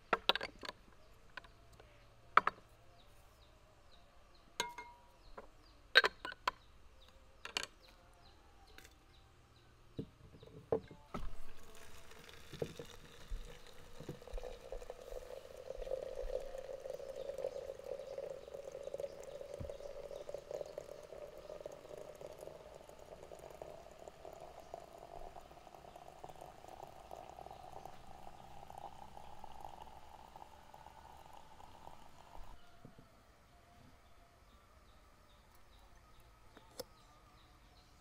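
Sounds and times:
water pouring into a teapot: 11.2 - 32.6.

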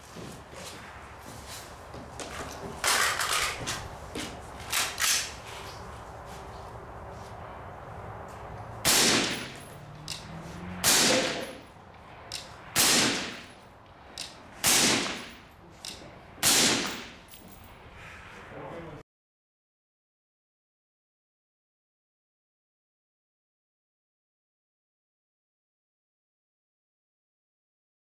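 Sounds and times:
suppressed rifle shots: 8.8 - 9.6, 10.8 - 11.6, 12.8 - 13.5, 14.6 - 15.4, 16.4 - 17.2.

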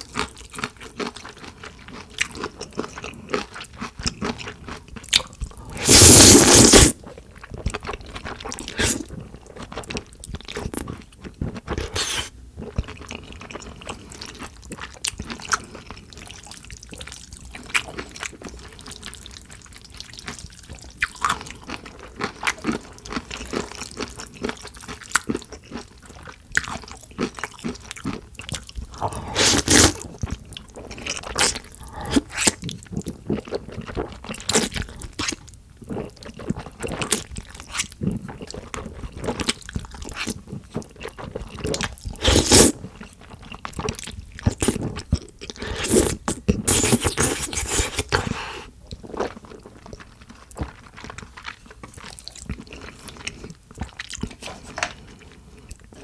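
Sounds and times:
chewing: 0.0 - 56.0
slurping noodles: 5.6 - 7.0, 8.6 - 9.1, 11.9 - 12.3, 28.9 - 30.0, 31.4 - 32.6, 42.2 - 42.8, 45.6 - 48.7.

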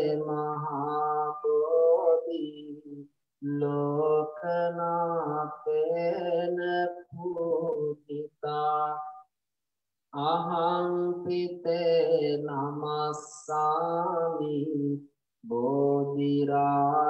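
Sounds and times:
man chanting: 0.0 - 2.8, 10.2 - 17.0.

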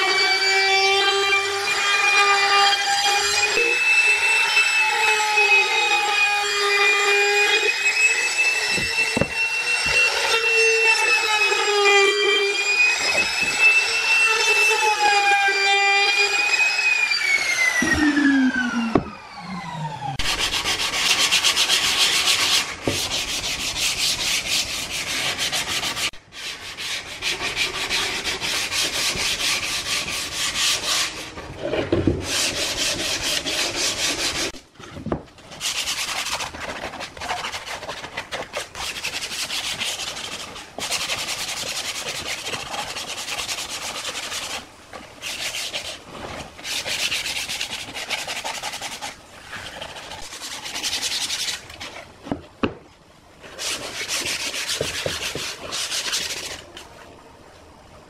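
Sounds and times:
sandpaper rubbing on wood: 20.2 - 31.4, 32.3 - 34.6, 35.5 - 52.0, 53.5 - 56.7.

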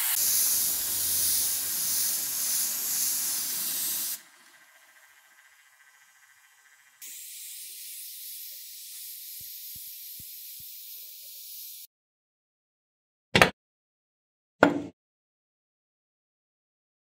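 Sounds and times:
spray paint hissing: 0.0 - 11.9
hard part knocking on wooden table: 14.6 - 14.9.

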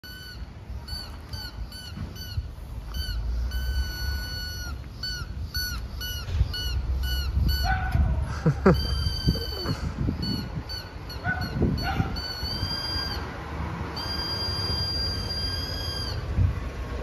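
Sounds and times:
squeaky toy squeaking: 0.0 - 7.8, 8.7 - 13.2.

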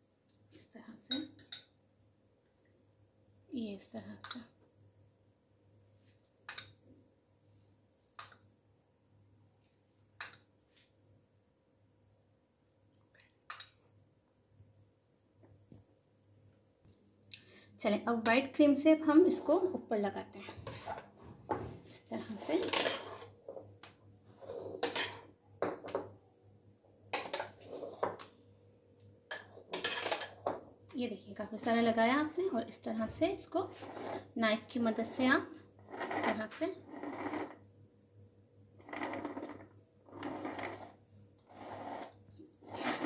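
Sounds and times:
metal spoon scraping bowl: 22.4 - 23.3, 33.7 - 34.4, 35.8 - 37.6, 38.8 - 43.0.

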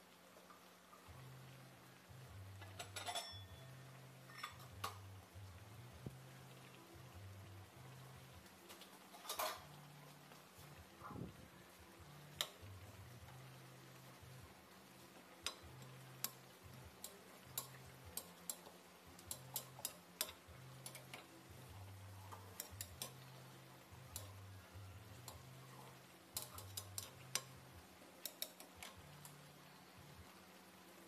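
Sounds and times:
stew simmering in a metal pan: 0.0 - 31.0.

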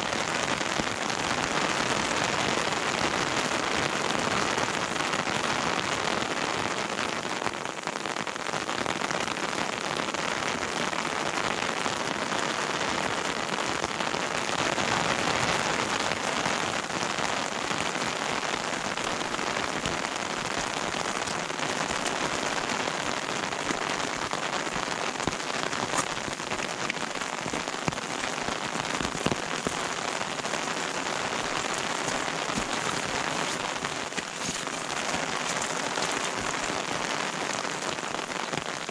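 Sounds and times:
rain pattering: 0.0 - 38.9.

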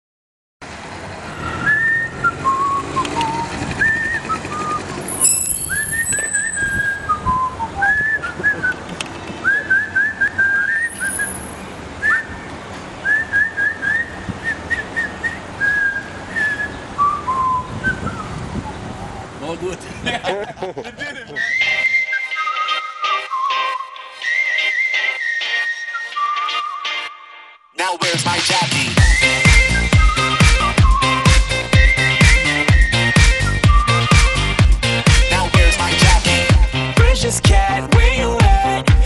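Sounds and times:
person whistling a tune: 1.4 - 8.8, 9.4 - 12.4, 13.0 - 18.4, 21.4 - 27.2, 29.0 - 36.6.

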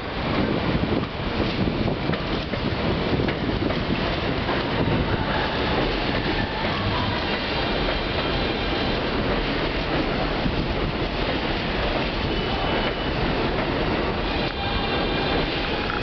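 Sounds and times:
steel train wheels on rails: 0.0 - 16.0.

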